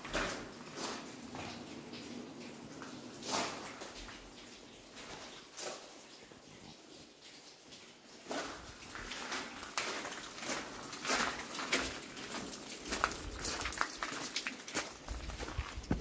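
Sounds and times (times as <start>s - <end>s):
rain pattering: 0.0s - 16.0s
footsteps crunching on wet gravel: 8.3s - 16.0s.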